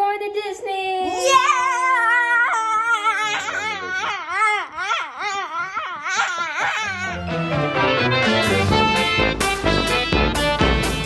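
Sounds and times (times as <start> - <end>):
children shouting in excitement: 1.0 - 7.3.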